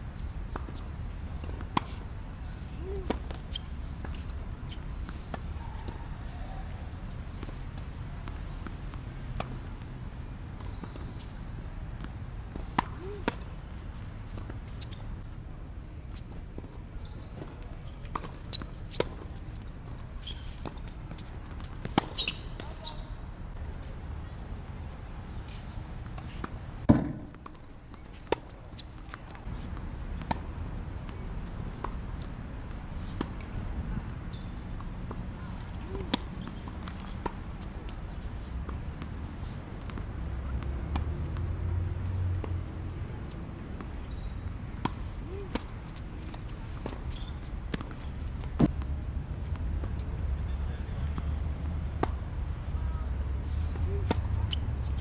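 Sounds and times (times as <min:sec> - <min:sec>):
tennis ball knocking on court: 0:26.9 - 0:27.6.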